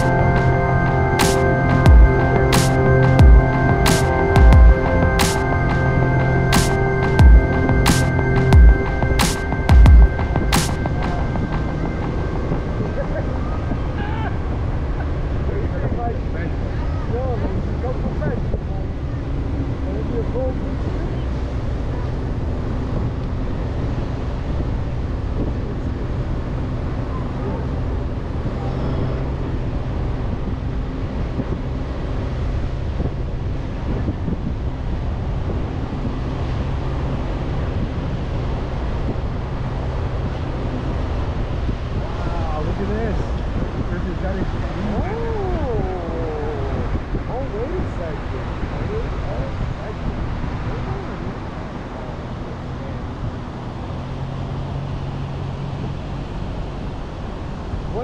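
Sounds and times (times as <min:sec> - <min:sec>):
pickup engine droning: 0:00.0 - 0:48.8
wind: 0:00.0 - 0:58.0
wind buffeting microphone: 0:29.3 - 0:58.0.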